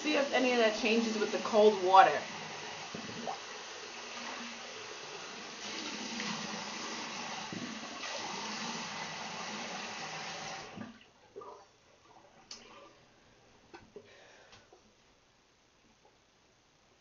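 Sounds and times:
tap water running and splashing: 0.0 - 11.5.

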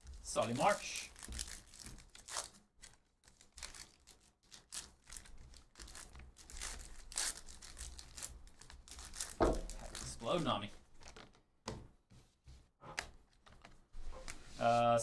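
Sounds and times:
card pack wrapper tearing: 0.4 - 10.2.

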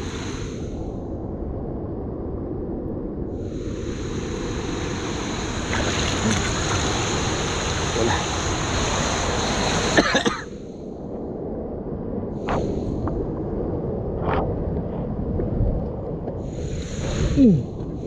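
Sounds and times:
water rushing over weir: 3.8 - 10.3.

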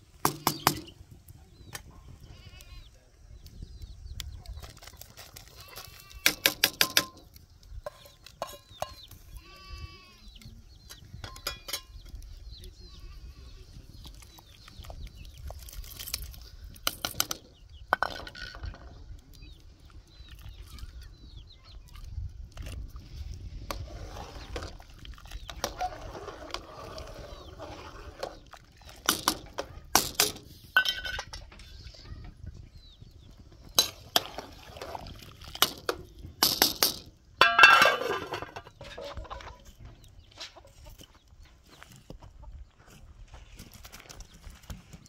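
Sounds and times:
sharp knocks and clinks: 11.2 - 12.0, 35.6 - 38.8.

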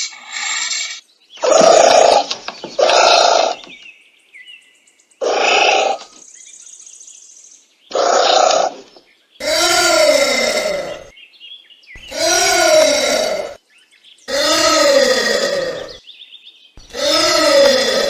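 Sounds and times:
anteater calling: 1.4 - 3.8, 5.2 - 6.1, 7.9 - 11.1, 12.0 - 13.6, 14.3 - 16.0.

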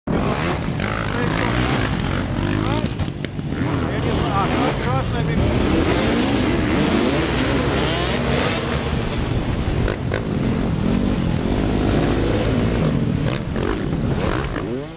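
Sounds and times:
motorcycle engines revving: 0.1 - 14.9
wind noise at helmet: 8.5 - 14.6.

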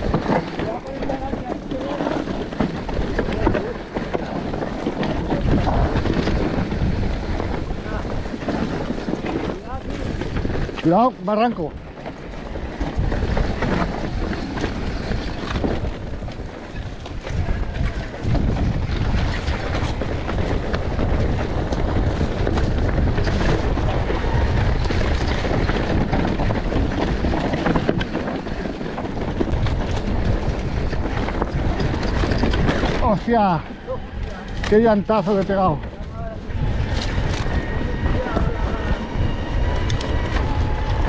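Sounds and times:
motorcycle engine running: 0.0 - 11.0, 11.8 - 16.5
wind noise on microphone: 0.0 - 41.0.

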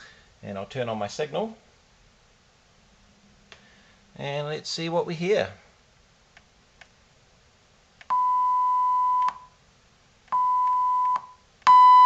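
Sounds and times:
soft clicks: 6.3 - 7.0.

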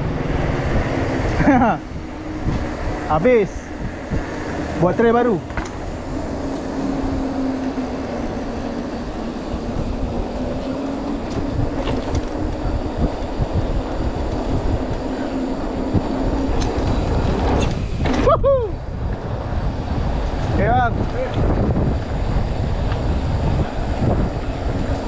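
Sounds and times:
low thumps and rumble: 0.0 - 8.4, 15.8 - 25.0
off-road vehicle engine running: 0.0 - 25.0.

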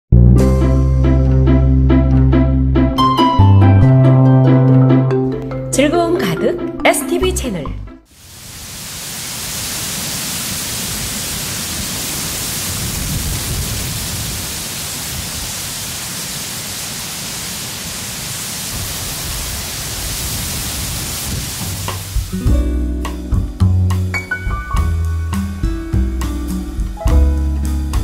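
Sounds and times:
wind through bamboo leaves: 8.1 - 22.4
wind rumbling on microphone: 10.6 - 16.1, 18.7 - 22.3.

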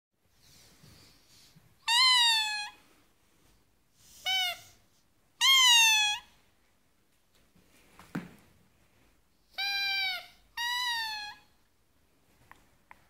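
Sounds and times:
squeaky dog toy squeaking: 1.8 - 2.8, 4.2 - 4.8, 5.4 - 6.4, 9.5 - 11.6.

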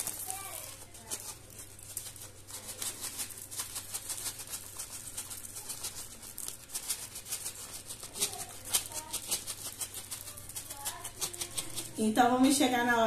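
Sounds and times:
sprinkles rattling in a shaker: 0.0 - 12.8.

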